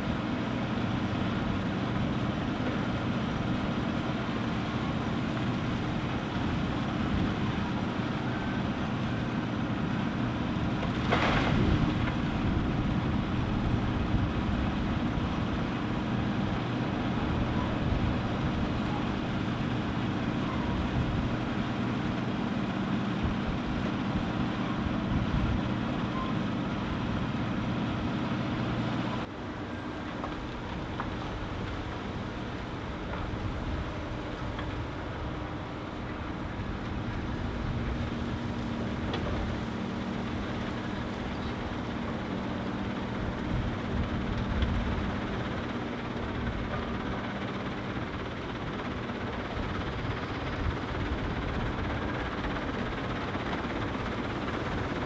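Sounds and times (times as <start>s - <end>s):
diesel engines running: 0.0s - 55.0s
rocks tipped into hopper: 10.8s - 12.2s.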